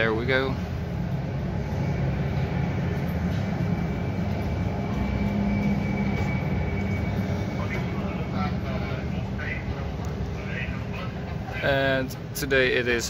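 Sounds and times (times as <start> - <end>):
faint high whine: 0.0 - 12.0
low airport rumble: 0.0 - 13.0.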